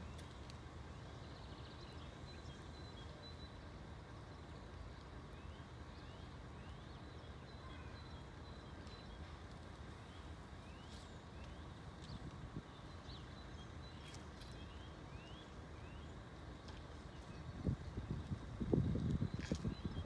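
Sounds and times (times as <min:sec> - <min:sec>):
small birds chirping: 0:00.0 - 0:20.0
steady low rumble: 0:08.4 - 0:20.0.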